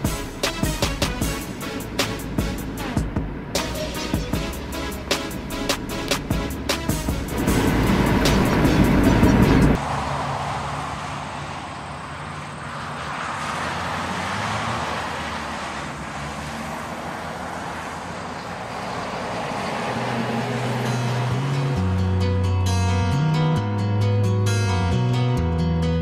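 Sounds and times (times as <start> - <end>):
car driving by on road: 4.6 - 22.1.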